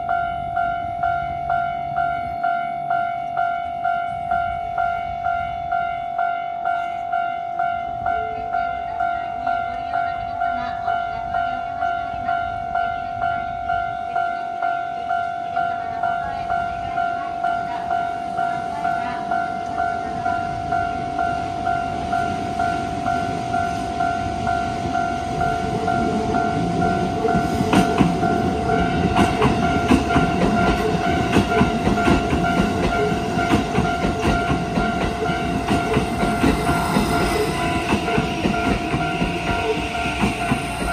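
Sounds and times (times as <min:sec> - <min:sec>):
electric train rumbling: 0:00.0 - 0:40.9
level crossing warning bell dinging: 0:00.0 - 0:40.9
train wheels clacking on rail joints: 0:25.7 - 0:40.9.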